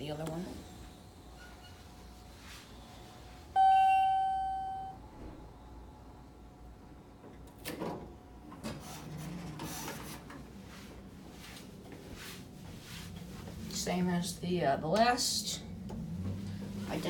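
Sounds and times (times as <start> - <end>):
elevator chime ding: 3.6 - 5.0
elevator doors sliding open: 7.3 - 10.6.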